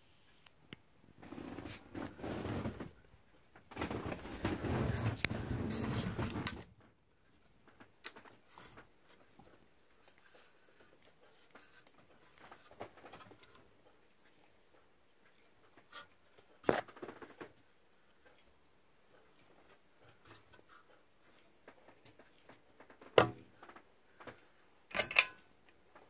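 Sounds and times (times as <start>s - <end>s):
faint motor ticks and rattles: 0.4s - 26.0s.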